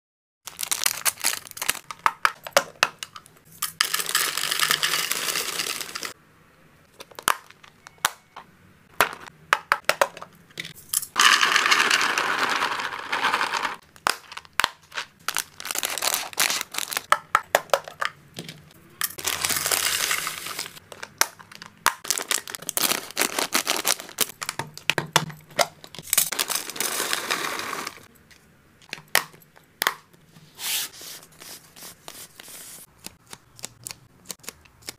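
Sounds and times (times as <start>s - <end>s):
plastic packets crinkling: 0.5s - 2.5s, 3.8s - 6.2s, 11.2s - 18.6s, 19.2s - 28.1s
dry pieces pouring and rattling: 3.8s - 6.2s, 11.2s - 13.8s, 19.2s - 20.8s, 26.1s - 28.1s.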